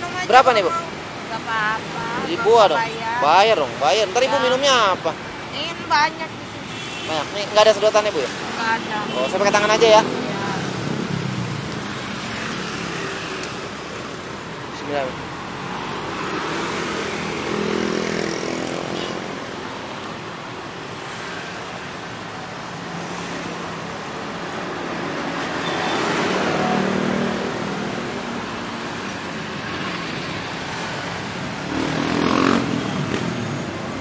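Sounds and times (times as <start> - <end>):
road traffic: 0.0 - 34.0
vehicles passing close by: 0.0 - 34.0.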